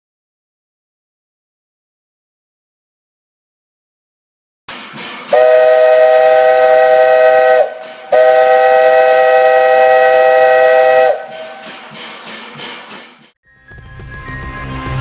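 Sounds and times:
steam hissing: 4.7s - 13.4s
three-chime steam whistle: 5.0s - 12.1s.

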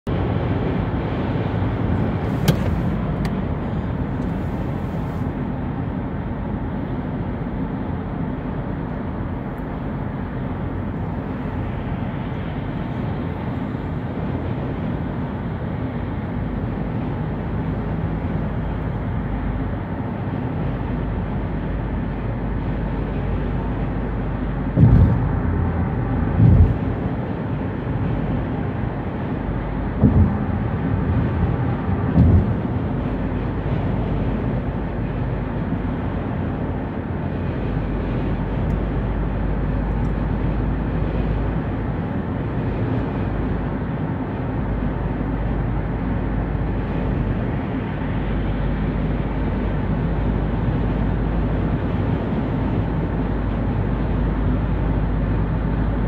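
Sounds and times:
road and tyre noise: 0.0s - 56.0s
short loud thumps: 24.8s - 25.5s, 26.3s - 27.0s, 30.0s - 30.5s.

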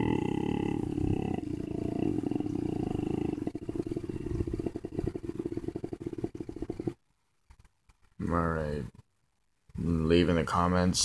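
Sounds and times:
low growling bass singing: 0.0s - 7.0s.

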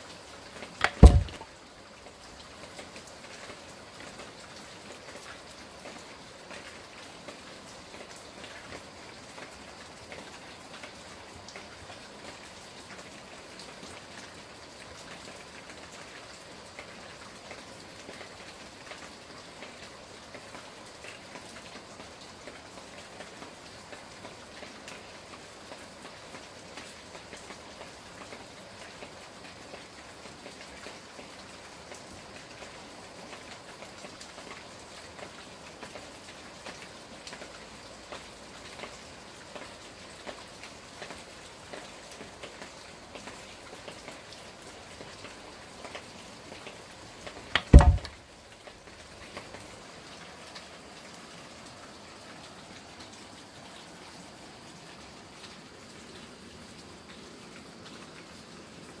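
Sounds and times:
sharp heavy thud: 0.8s - 1.4s, 47.6s - 48.2s.

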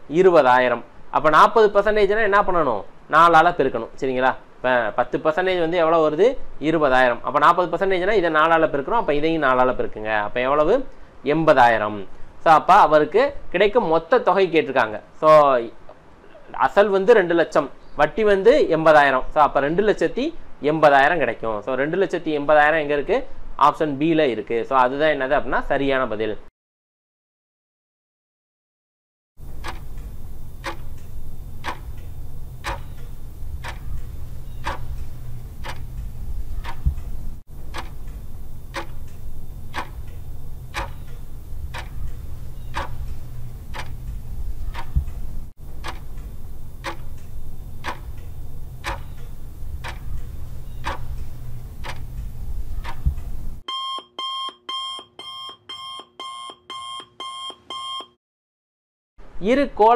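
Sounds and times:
steady low hum: 29.4s - 53.6s
clock ticking: 29.5s - 53.4s
electronic alarm beeping: 29.6s - 37.0s, 37.7s - 44.0s, 52.8s - 58.2s.

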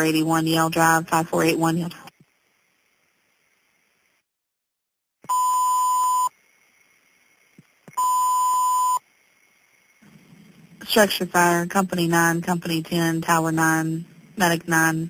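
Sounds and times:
long radio alert beeps: 5.3s - 6.3s, 8.0s - 9.0s.

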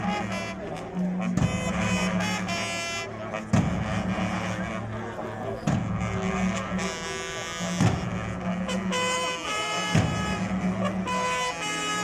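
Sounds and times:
heavy beat: 0.0s - 4.9s, 5.6s - 12.0s.

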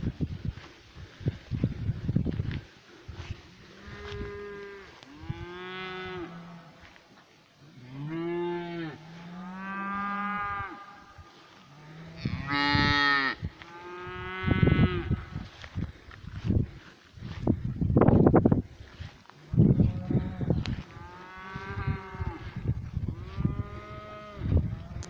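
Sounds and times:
cows mooing: 3.6s - 6.8s, 7.7s - 15.3s, 19.6s - 25.0s.

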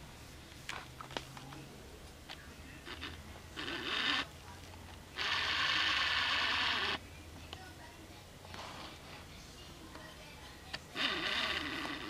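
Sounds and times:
lens autofocus motor whirring: 2.8s - 4.3s, 5.2s - 7.0s, 11.0s - 12.0s.

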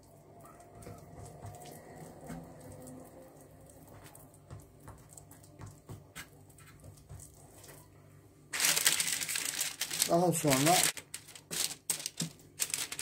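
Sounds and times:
hands rolling dough: 3.7s - 8.0s.

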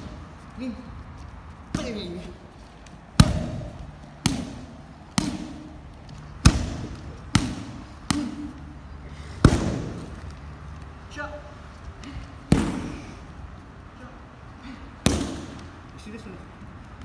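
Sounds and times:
strikes smacking pads: 3.1s - 5.8s, 6.4s - 8.5s, 9.4s - 10.1s, 12.5s - 13.0s, 15.0s - 15.7s.

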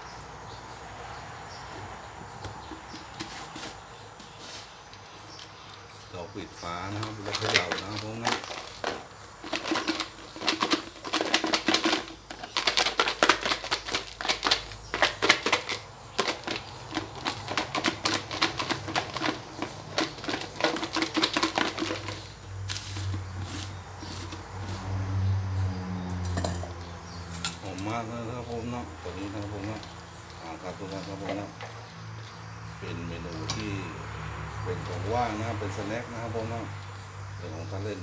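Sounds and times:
food rattling in shaken plastic tub: 6.7s - 24.4s.

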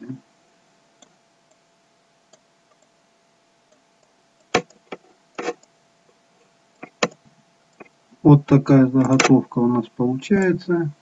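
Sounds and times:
faint steady hum: 0.0s - 11.0s
computer mouse clicking: 3.7s - 5.7s, 6.8s - 7.9s.

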